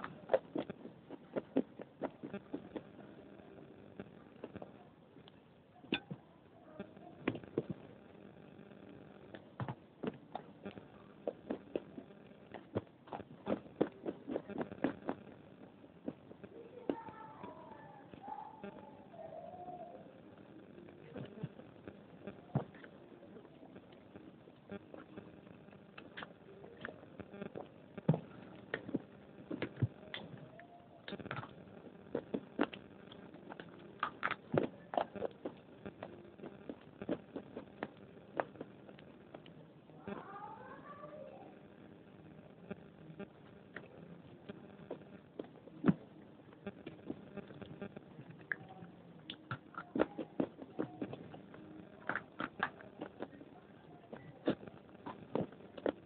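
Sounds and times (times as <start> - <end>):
crunchy chewing: 0.0 - 6.2, 6.8 - 20.0, 20.9 - 40.4, 42.7 - 56.0
mouth clicks: 8.8 - 20.1, 23.8 - 40.3, 42.7 - 53.5.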